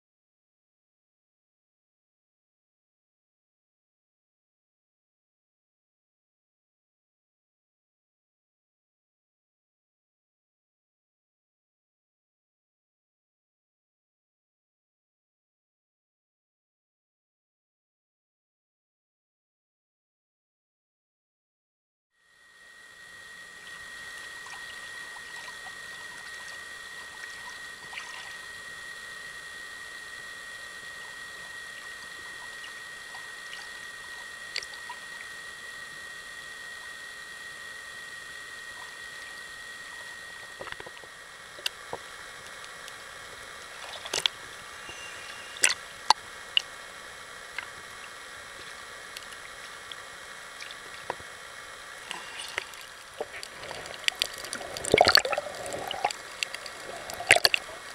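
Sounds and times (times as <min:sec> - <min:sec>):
underwater hiss: 0:43.7 - 0:46.6, 0:51.7 - 0:57.9
sharp underwater clicks: 0:44.0 - 0:44.4, 0:45.6 - 0:46.7, 0:52.1 - 0:57.9.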